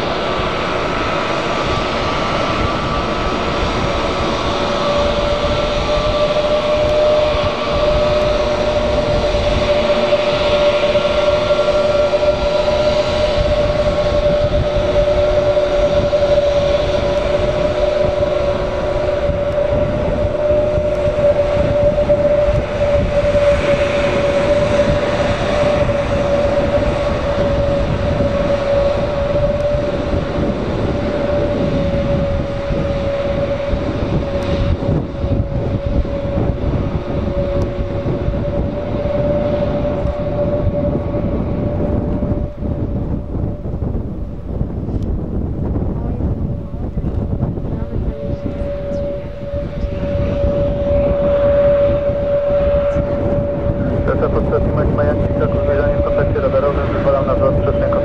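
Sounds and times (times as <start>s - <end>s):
jet engines whining at idle: 0.0s - 58.0s.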